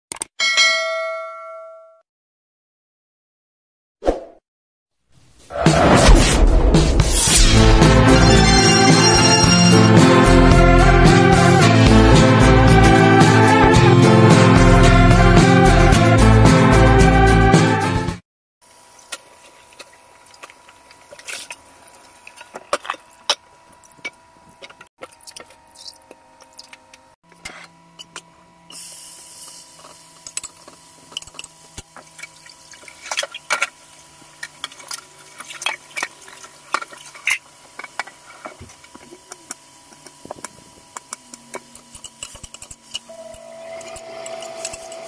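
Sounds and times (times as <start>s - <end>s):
meat sizzling in wok: 28.7s - 35.0s
tap water running into pot: 30.2s - 41.2s.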